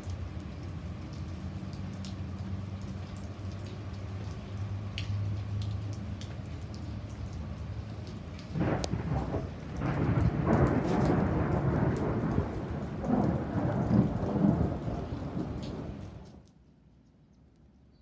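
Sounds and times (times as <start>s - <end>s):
heavy rain falling: 0.0s - 16.5s
sharp raindrop ticks: 0.0s - 18.0s
thunder rumbling: 8.5s - 16.4s.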